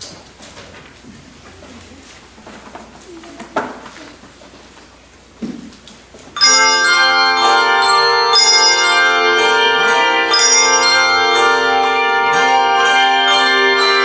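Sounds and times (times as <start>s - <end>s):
handbell choir ringing chords: 6.4s - 14.0s.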